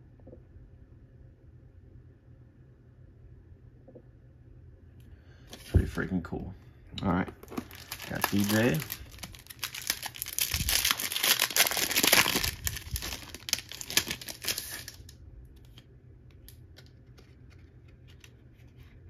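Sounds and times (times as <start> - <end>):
crinkly packaging rustling: 5.5 - 6.0, 7.2 - 19.0.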